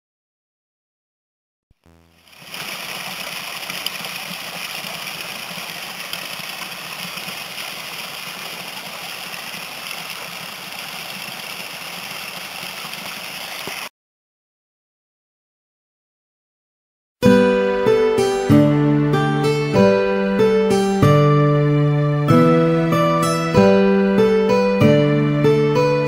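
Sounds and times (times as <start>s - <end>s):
waterfall splashing onto stones: 2.2s - 13.9s.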